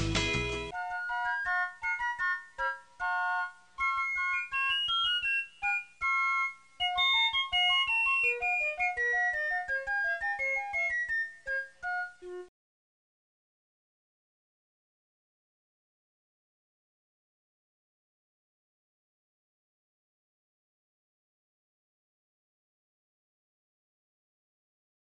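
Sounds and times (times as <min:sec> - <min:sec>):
strummed guitar passage: 0:00.0 - 0:00.7.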